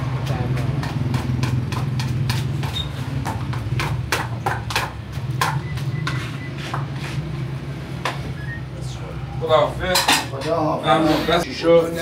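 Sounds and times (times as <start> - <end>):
dishes and utensils clinking: 9.9 - 10.6.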